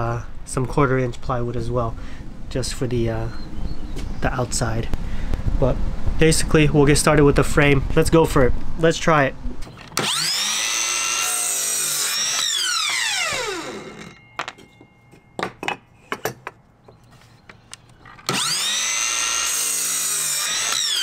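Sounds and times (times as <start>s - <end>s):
miter saw blade whine: 10.0s - 14.3s, 18.3s - 21.0s.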